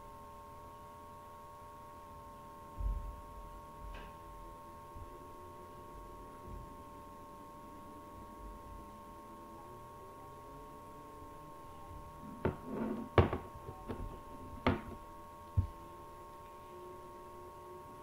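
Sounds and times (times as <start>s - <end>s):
faint steady hum: 0.0s - 18.0s
knocks and thuds: 12.4s - 15.0s.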